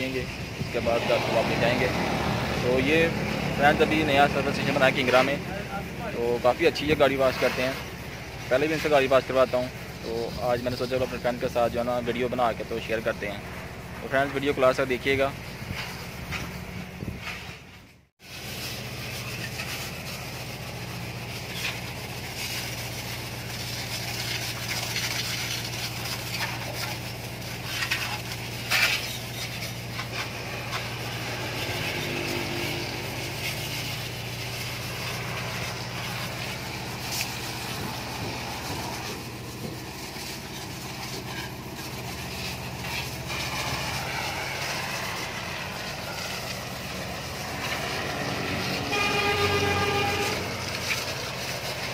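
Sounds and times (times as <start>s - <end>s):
water jet hissing: 0.0s - 16.8s, 18.2s - 51.9s
pressure washer motor hum: 0.0s - 17.1s, 18.2s - 51.9s
splashes and clatters: 13.4s - 51.9s.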